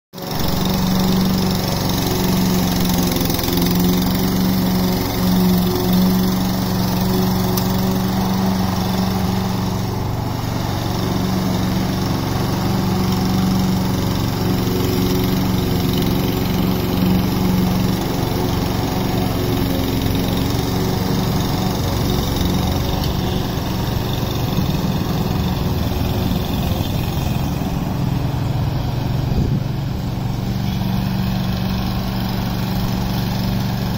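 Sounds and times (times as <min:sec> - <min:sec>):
lawn mower engine running: 0:00.1 - 0:33.9.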